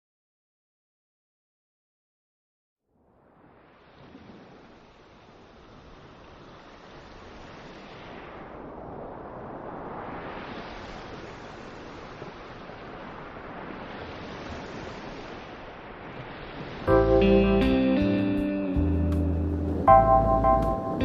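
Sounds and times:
wind and road noise: 2.9s - 17.4s, 18.8s - 21.0s.

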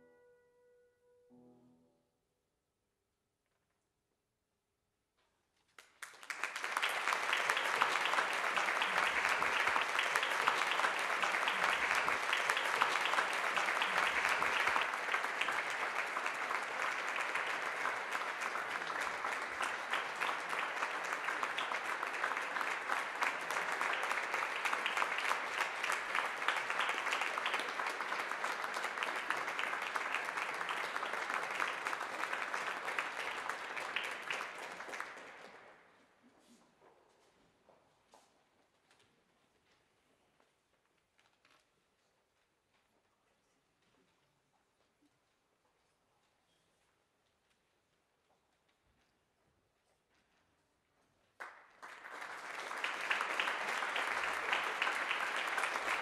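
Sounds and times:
audience applauding: 5.8s - 35.7s, 51.4s - 56.0s.

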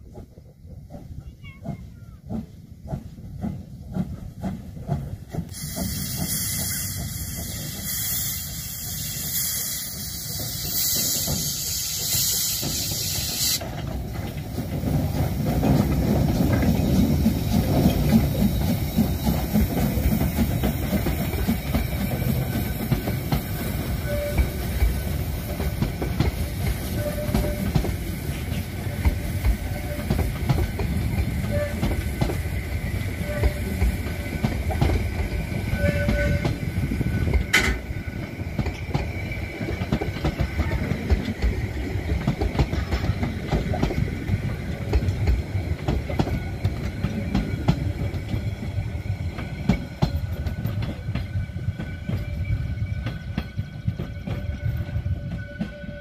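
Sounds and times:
rolling rumble of train: 0.0s - 56.0s
steam locomotive exhaust beats: 0.0s - 56.0s
hiss of escaping steam: 5.4s - 13.8s.

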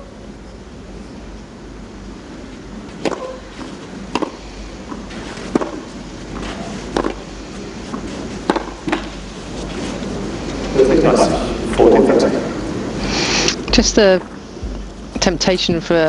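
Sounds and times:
background hiss: 0.0s - 15.1s
tennis ball hits: 3.0s - 7.3s, 7.9s - 9.2s.

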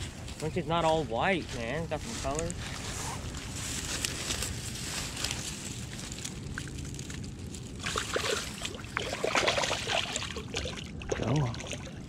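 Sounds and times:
hands crackling through dry grass: 0.0s - 8.8s
water sloshing: 5.9s - 12.0s.

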